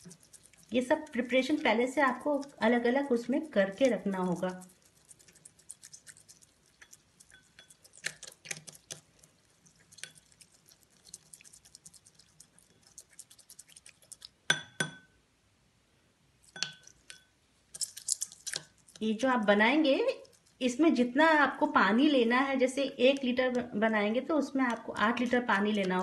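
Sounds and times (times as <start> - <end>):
spoon stirring in glass bowl: 0.0 - 15.1, 16.4 - 19.4, 20.0 - 20.7
spoon clinking on bowl: 6.8 - 7.9, 14.5 - 15.2, 16.5 - 17.3.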